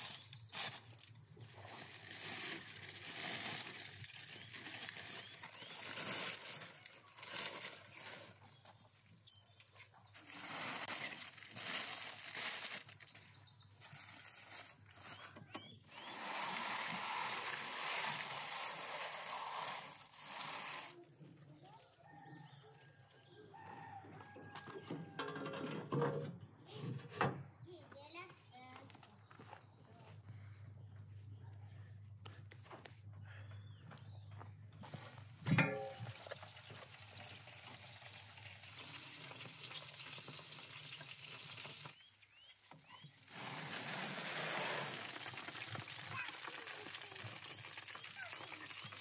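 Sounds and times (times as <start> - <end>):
aluminium foil crinkling and tearing: 0.0 - 9.3, 10.1 - 21.1, 43.3 - 49.0.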